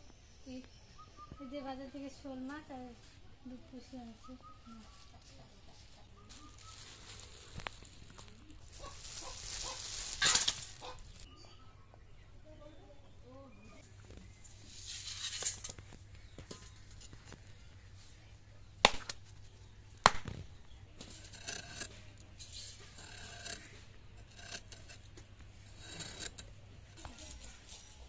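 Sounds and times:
short scraping cuts: 0:21.0 - 0:27.9.

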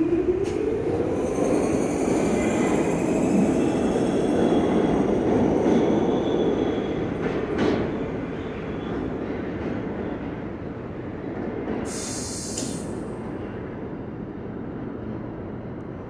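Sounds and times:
subway train motors whining: 0:00.0 - 0:16.0
wheels rumbling on rail: 0:00.0 - 0:16.0
rail clack: 0:02.2 - 0:08.0, 0:11.4 - 0:13.1.

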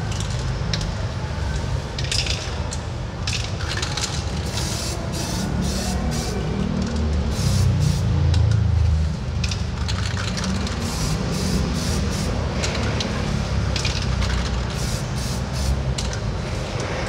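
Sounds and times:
aerosol spray can hissing: 0:04.6 - 0:06.4.

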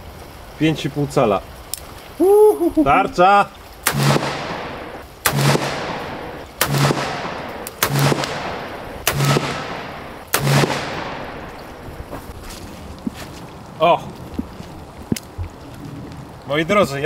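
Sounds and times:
revolver shots echoing: 0:03.9 - 0:11.8.

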